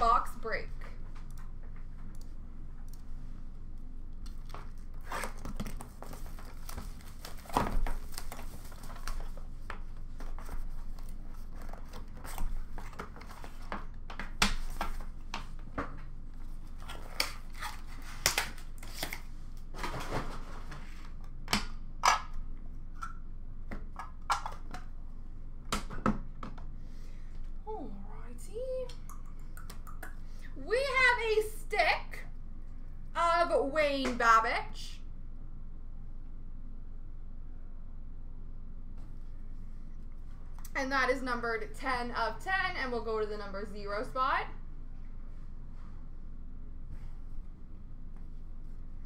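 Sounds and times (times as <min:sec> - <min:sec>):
cardboard flaps folding: 0:04.6 - 0:15.6.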